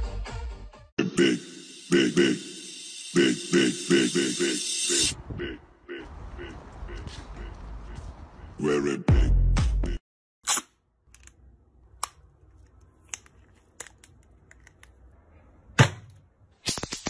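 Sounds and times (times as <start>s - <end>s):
electric racket clicks and snaps: 16.6s - 17.0s.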